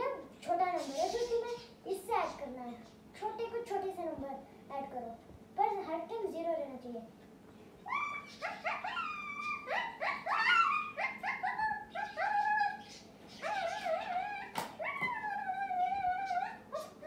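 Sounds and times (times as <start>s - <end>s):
dog whining and yelping: 7.9s - 17.0s.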